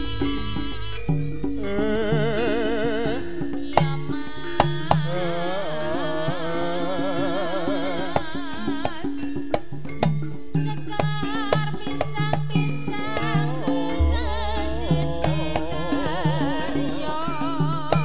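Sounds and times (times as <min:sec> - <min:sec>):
gamelan gong tones: 0:00.0 - 0:02.8, 0:12.6 - 0:18.0
wavering lead melody: 0:13.0 - 0:18.0
sharp drum strokes: 0:13.8 - 0:16.7.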